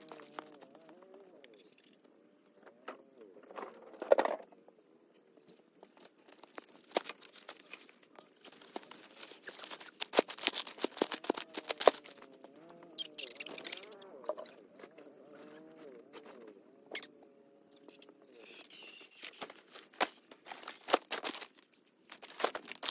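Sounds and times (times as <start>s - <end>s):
cardboard rustling and crinkling: 5.4s - 12.8s, 18.6s - 22.9s
loud crackle: 8.5s - 12.3s.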